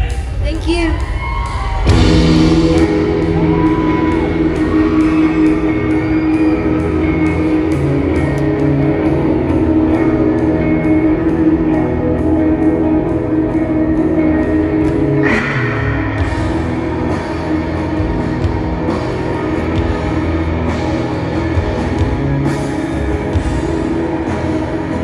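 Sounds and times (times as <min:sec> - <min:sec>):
loud rock music: 0:00.0 - 0:25.0.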